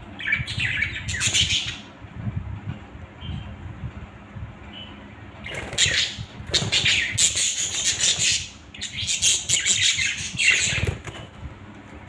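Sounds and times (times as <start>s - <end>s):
budgerigars chirping and chattering: 0.2s - 1.9s, 4.8s - 11.2s.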